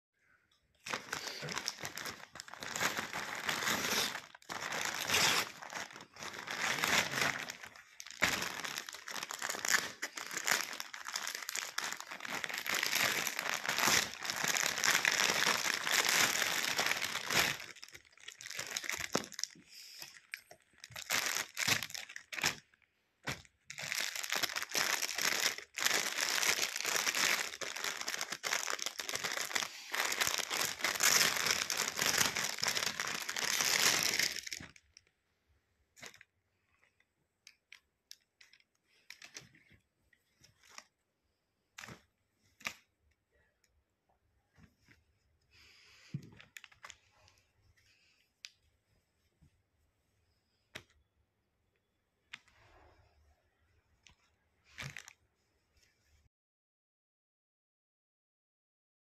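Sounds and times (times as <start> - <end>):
paper and plastic bags crinkling: 0.8 - 35.0, 36.0 - 36.9, 38.1 - 39.8.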